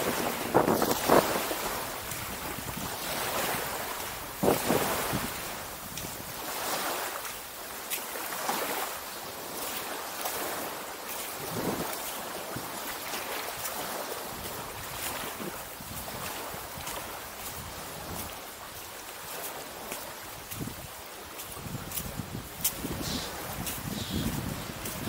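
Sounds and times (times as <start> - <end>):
wind buffeting microphone: 0.0 - 6.6, 11.4 - 12.8, 14.3 - 18.4, 20.4 - 25.0
small waves washing on shore: 0.0 - 25.0.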